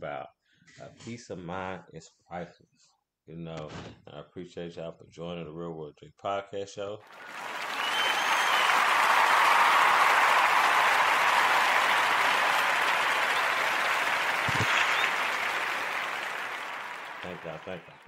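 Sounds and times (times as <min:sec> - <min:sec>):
crowd applause: 0:07.0 - 0:18.0
short whistle: 0:07.3 - 0:10.4.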